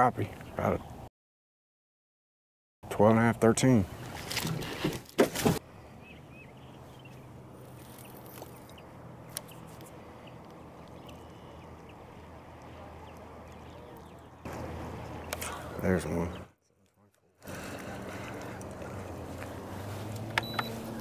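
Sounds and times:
knocks and rustles: 0:04.2 - 0:05.6
boat motor humming: 0:05.6 - 0:16.5, 0:17.3 - 0:21.0.

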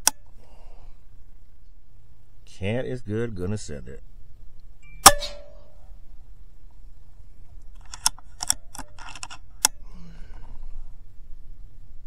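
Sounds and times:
air rifle shot: 0:05.0 - 0:05.8.

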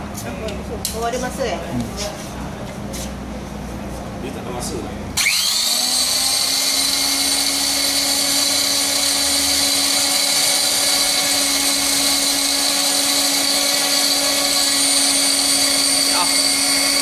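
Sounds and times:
grinder motor humming and whining: 0:05.2 - 0:17.0.

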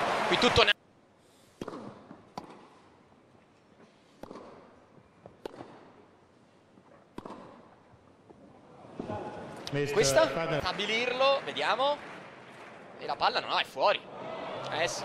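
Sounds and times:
tennis racket hitting ball: 0:01.6 - 0:02.8, 0:04.2 - 0:04.7, 0:05.4 - 0:05.9, 0:07.1 - 0:07.7.

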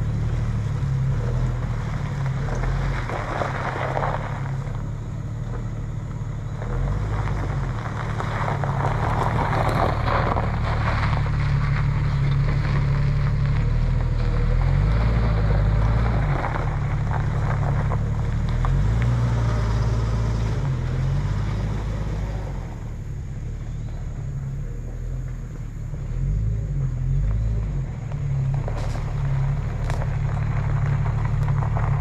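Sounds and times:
car engine revving: 0:00.0 - 0:32.0
tyres crunching on gravel: 0:00.0 - 0:32.0.

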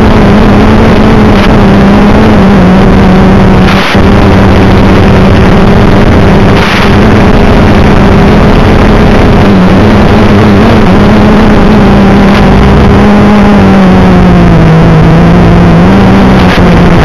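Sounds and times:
quadcopter motors humming: 0:00.0 - 0:17.0.

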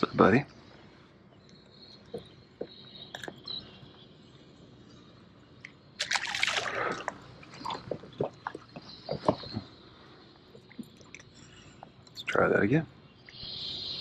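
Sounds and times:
water splashing: 0:06.0 - 0:09.6.

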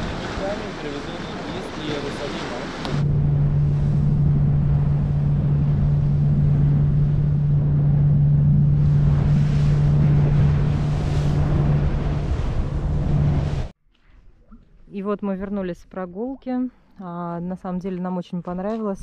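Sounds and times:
motorboat engine drone: 0:00.0 - 0:13.7
wind buffeting microphone: 0:00.0 - 0:13.7
water rushing past hull: 0:00.0 - 0:13.8.

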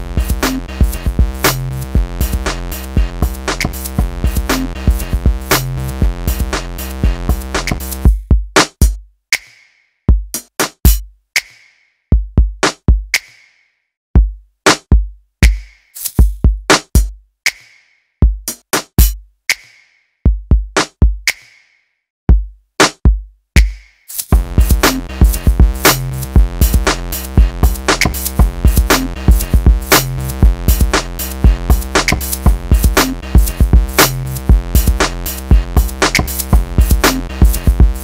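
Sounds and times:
electronic music: 0:00.0 - 0:08.1, 0:24.3 - 0:38.0
drum machine kicks and snares: 0:00.0 - 0:13.4, 0:14.2 - 0:21.6, 0:22.3 - 0:38.0.

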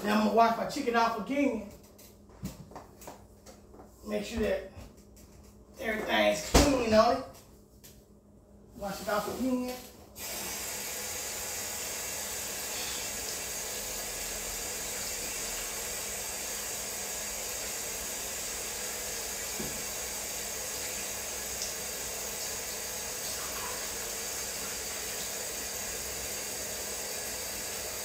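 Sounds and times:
kitchen faucet running: 0:09.0 - 0:28.0.

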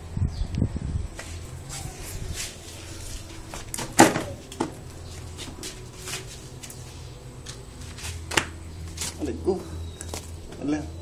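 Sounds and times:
flip-flop slapping on concrete: 0:07.4 - 0:09.2.

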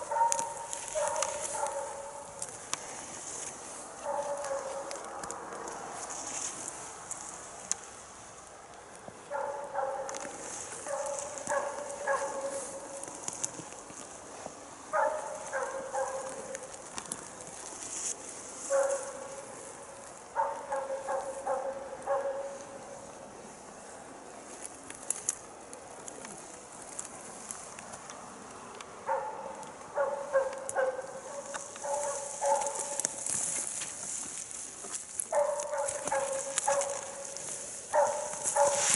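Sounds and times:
dog barking: 0:00.0 - 0:02.3, 0:04.0 - 0:05.0, 0:09.3 - 0:10.2, 0:10.8 - 0:13.0, 0:14.9 - 0:16.6, 0:18.7 - 0:19.4, 0:20.4 - 0:22.7, 0:29.0 - 0:33.1, 0:35.3 - 0:38.9.

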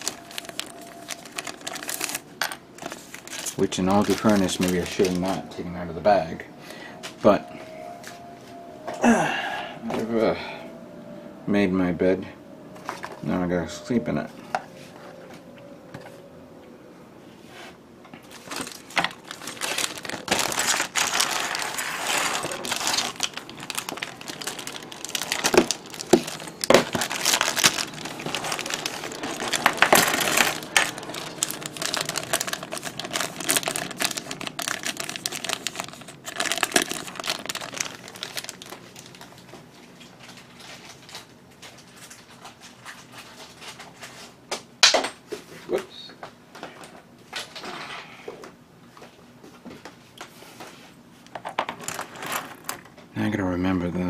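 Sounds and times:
plastic bag crinkling: 0:00.0 - 0:05.6, 0:18.2 - 0:43.0, 0:51.3 - 0:52.9.

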